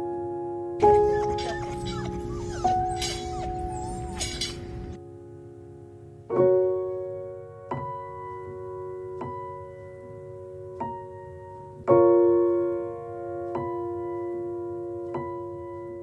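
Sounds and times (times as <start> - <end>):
slow piano music: 0.0 - 16.0.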